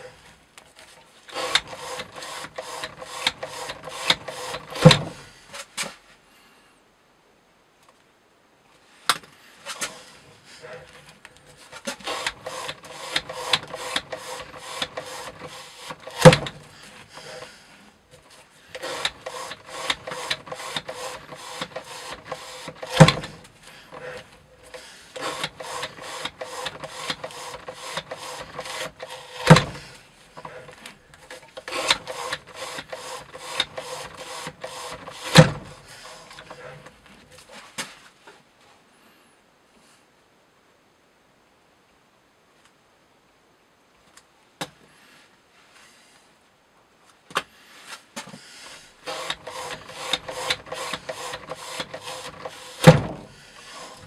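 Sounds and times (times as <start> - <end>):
quick even clicking and rubbing: 11.6 - 17.6, 18.7 - 38.0, 49.0 - 54.0.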